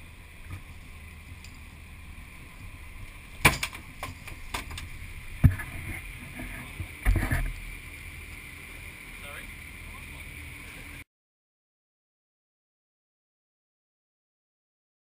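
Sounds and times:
boat background noise: 0:00.0 - 0:11.0.

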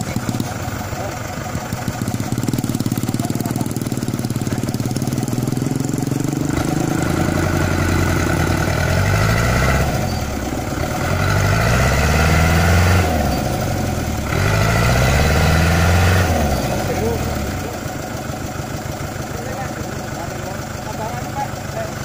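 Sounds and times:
truck engine revving hard: 0:00.0 - 0:18.2.

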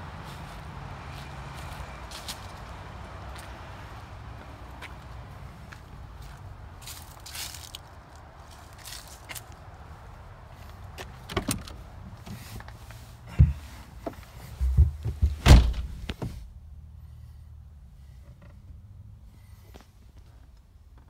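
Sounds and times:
heavy thuds: 0:13.3 - 0:16.4
car door slamming: 0:14.6 - 0:16.4.

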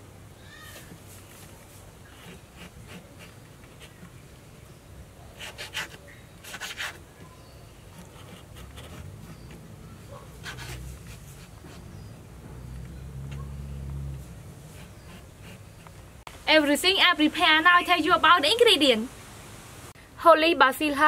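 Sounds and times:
knife cutting on wooden board: 0:10.2 - 0:12.0.

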